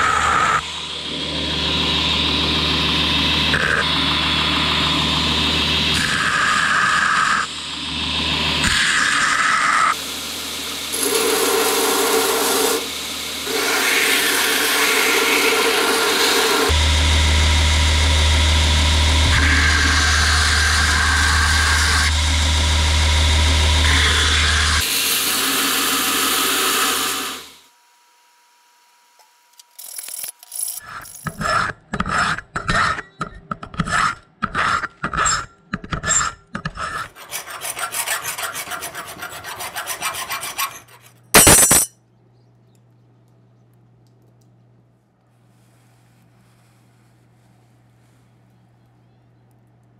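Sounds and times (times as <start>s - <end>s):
belt grinder grinding steel: 10.9s - 27.4s, 29.8s - 41.9s
hacksaw cutting steel: 11.0s - 16.8s, 30.8s - 41.9s.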